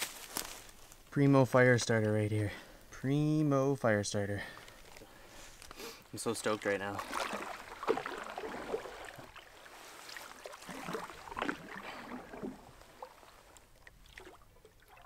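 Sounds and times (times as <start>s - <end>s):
paddle swishing through water: 6.2s - 15.0s
water dripping: 6.3s - 15.0s.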